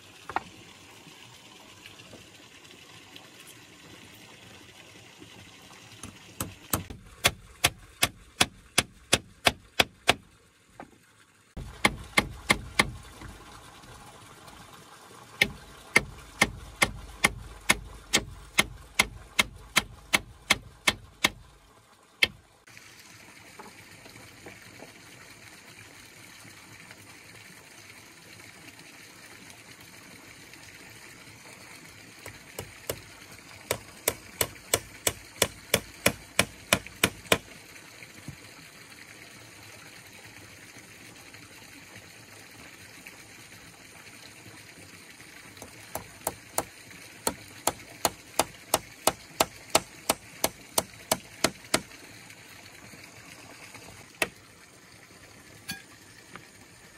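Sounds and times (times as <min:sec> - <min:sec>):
tool striking wood: 0:06.0 - 0:10.2, 0:11.6 - 0:13.1, 0:15.4 - 0:21.4, 0:33.7 - 0:37.4, 0:47.3 - 0:51.9.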